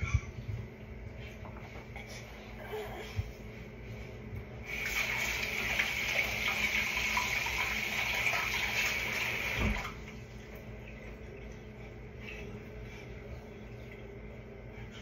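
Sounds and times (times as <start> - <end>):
faucet running: 4.6 - 11.7.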